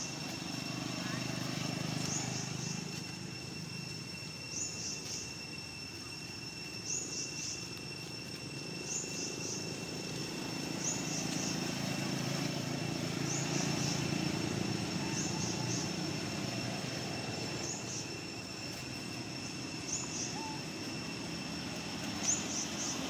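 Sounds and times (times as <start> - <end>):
steady high whine: 0.0 - 23.0
high chirping calls: 13.2 - 21.2, 22.0 - 23.0.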